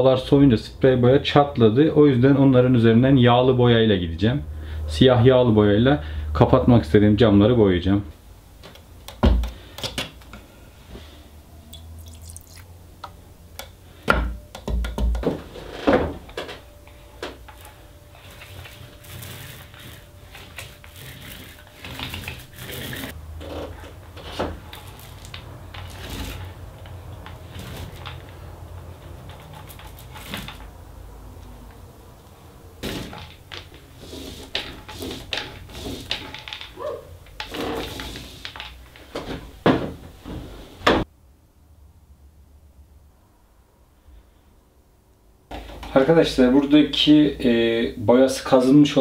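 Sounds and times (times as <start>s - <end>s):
paint roller wet swishing: 17.5s - 23.2s, 24.6s - 30.7s, 32.8s - 36.6s, 37.4s - 38.8s.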